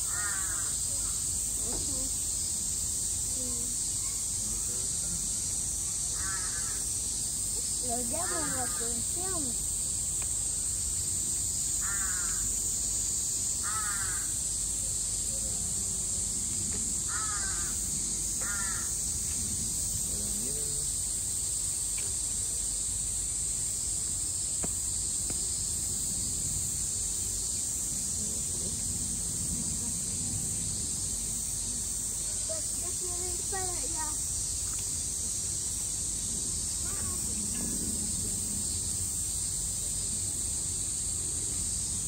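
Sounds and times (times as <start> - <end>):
crows cawing: 0.0 - 0.8, 6.2 - 6.8, 11.8 - 12.5, 13.6 - 14.3, 17.1 - 17.8, 18.4 - 18.9
steady high-pitched hiss: 0.0 - 42.0.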